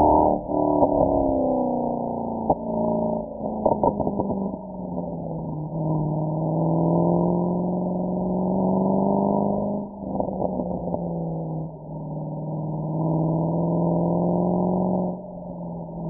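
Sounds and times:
car exhaust accelerating: 0.0 - 16.0.

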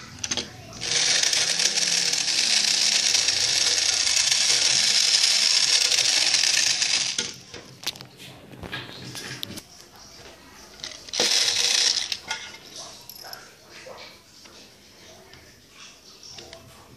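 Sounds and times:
toy train motor whirring: 0.0 - 7.5, 10.8 - 13.4
toy being handled clicks and knocks: 0.0 - 8.1, 10.8 - 13.4.

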